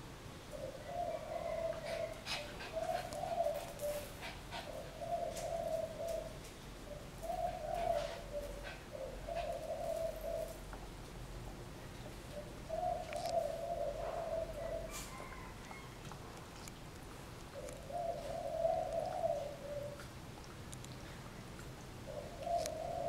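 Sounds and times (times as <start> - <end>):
dove cooing: 0.5 - 10.7, 12.2 - 16.1, 17.5 - 20.2, 22.0 - 23.0.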